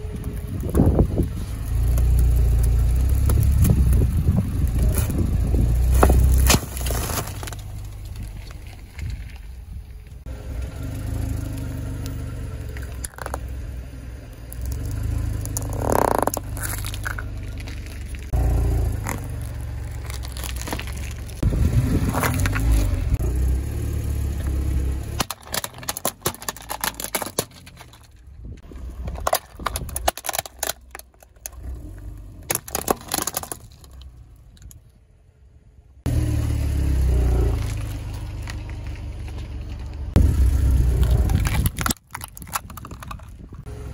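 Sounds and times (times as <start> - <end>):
plastic cracking under tyre: 1.8 - 10.0, 12.7 - 13.5, 14.5 - 21.4, 22.0 - 22.9, 24.4 - 35.0, 40.9 - 43.6
cones crunching: 5.9 - 9.2, 14.5 - 21.4, 25.2 - 28.2, 29.0 - 31.8, 32.5 - 34.1, 41.0 - 43.4
car engine running: 10.1 - 34.6, 35.3 - 43.9.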